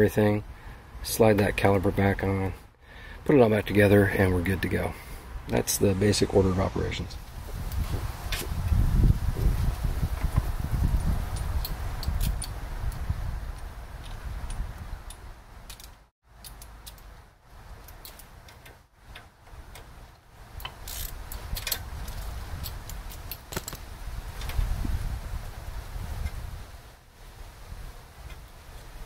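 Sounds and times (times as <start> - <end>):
wind rumble on microphone: 5.8 - 15.8, 20.5 - 29.0
ratchet wrench clicking: 20.6 - 23.8.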